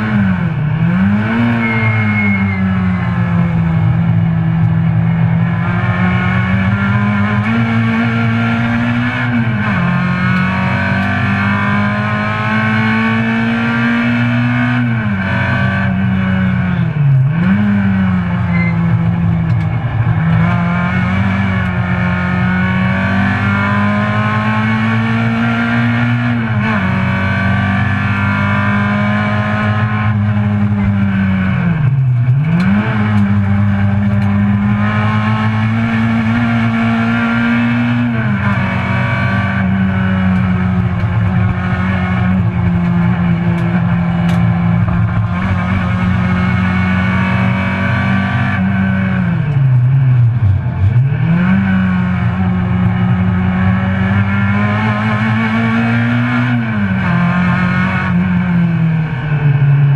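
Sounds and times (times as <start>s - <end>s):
car engine at high revs: 0.0s - 59.9s.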